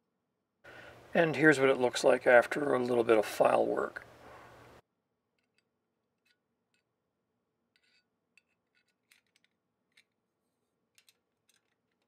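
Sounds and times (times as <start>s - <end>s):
padlock and key clinking: 7.7s - 10.3s, 10.9s - 12.0s.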